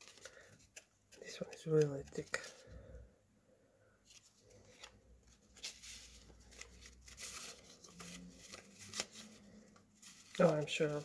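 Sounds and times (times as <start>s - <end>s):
paper tags rustling: 4.1s - 11.0s.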